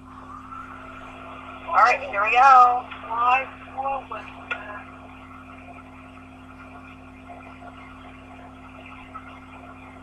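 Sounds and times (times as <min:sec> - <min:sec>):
electrical mains hum: 0:00.0 - 0:10.0.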